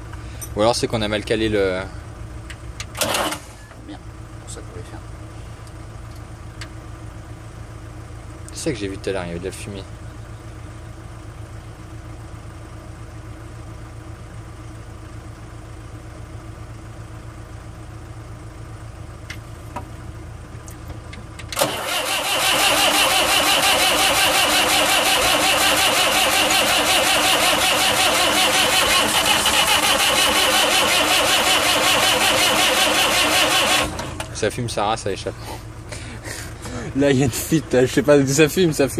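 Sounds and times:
starter motor cranking engine: 2.8 - 3.6, 21.5 - 34.5.

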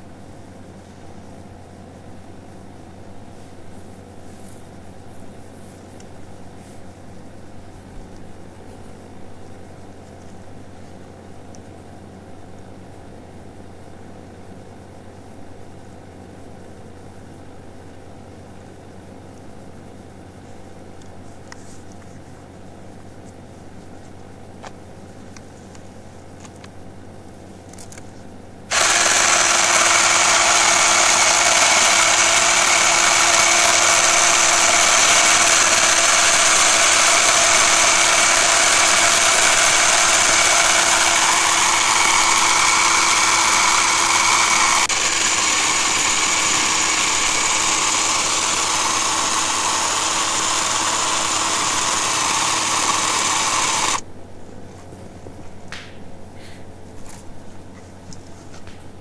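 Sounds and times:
chainsaw cutting tree trunk: 28.7 - 54.0.

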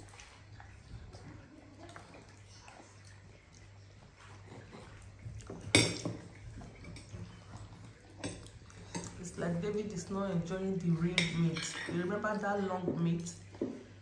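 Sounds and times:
low steady hum: 0.0 - 14.0
cutlery clinking on plates: 5.6 - 7.2, 11.1 - 12.1.

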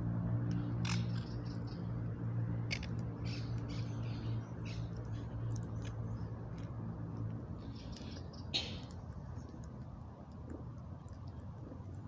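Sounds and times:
birds pecking clicks: 0.4 - 1.8, 2.6 - 3.9, 4.7 - 6.8
birds chirping: 3.2 - 6.4, 7.6 - 9.7.

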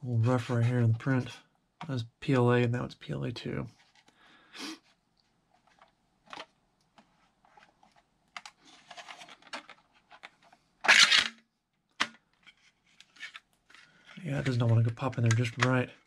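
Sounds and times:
plastic clicks and rattles: 7.9 - 15.8
plastic clack: 8.3 - 16.0.

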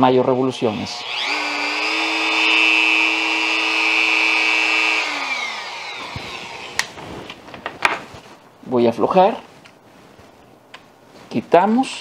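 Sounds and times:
rotary tool whining: 0.8 - 7.4.

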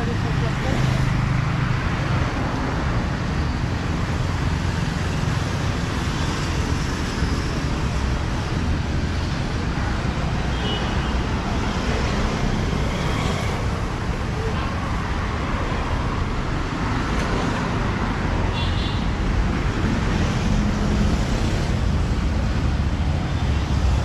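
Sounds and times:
road traffic noise: 0.0 - 24.0.

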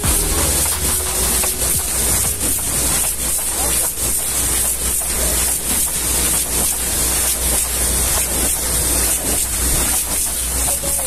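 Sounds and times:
low steady hum: 0.0 - 5.4
high-pressure water spray hissing: 0.0 - 11.0.

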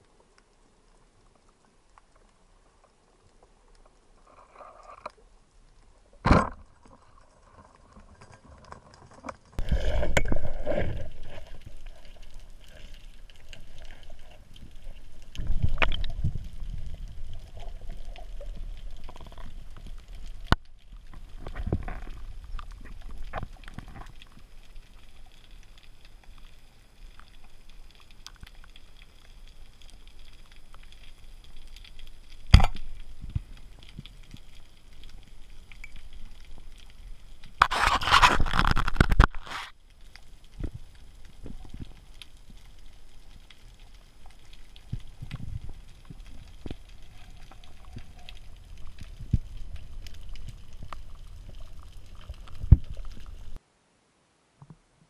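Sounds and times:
underwater water rushes: 9.2 - 24.8.

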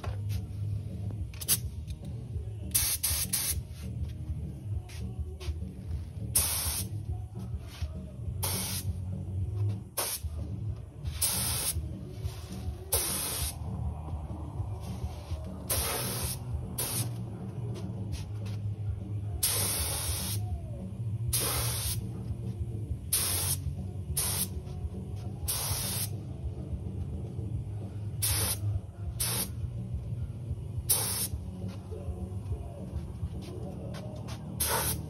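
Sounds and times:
steady low hum: 0.0 - 35.0
spray gun hissing: 23.1 - 23.6, 30.9 - 31.4.

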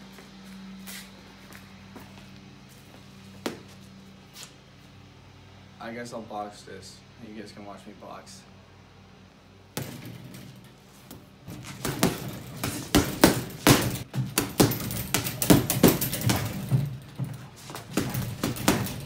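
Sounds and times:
gloves punching a heavy bag: 11.1 - 19.0.

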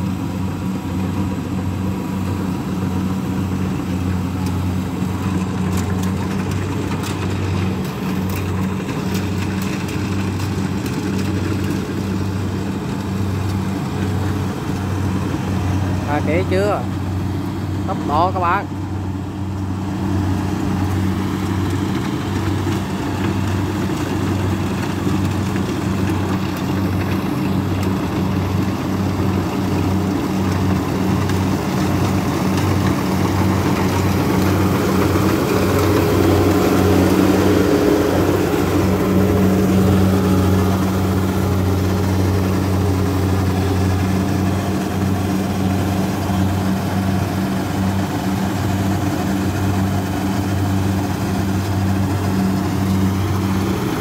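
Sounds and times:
combine harvester diesel drone: 0.0 - 54.0.

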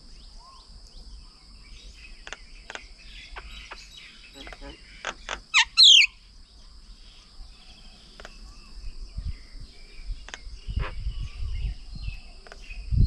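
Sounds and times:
bird chirps: 0.0 - 13.0
high insect drone: 0.0 - 13.0
sharp clicks: 2.2 - 2.9.

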